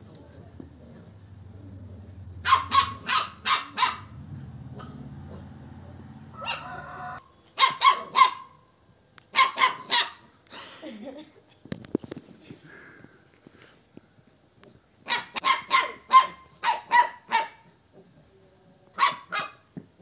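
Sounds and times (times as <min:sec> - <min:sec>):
dog barking: 0:01.4 - 0:08.6, 0:09.3 - 0:10.3, 0:15.0 - 0:17.7, 0:19.0 - 0:19.7.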